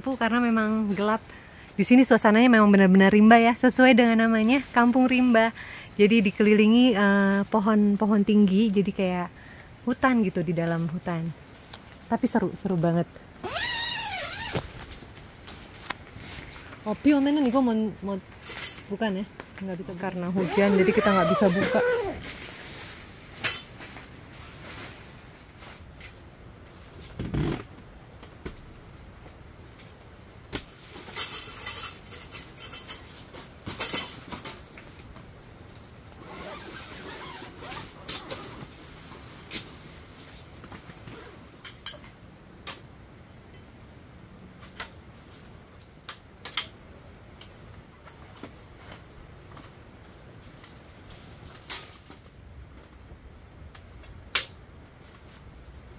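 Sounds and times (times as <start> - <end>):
zipper pulled open: 13.4 - 14.8, 20.4 - 22.4, 27.1 - 27.7, 36.2 - 38.8, 41.0 - 41.5.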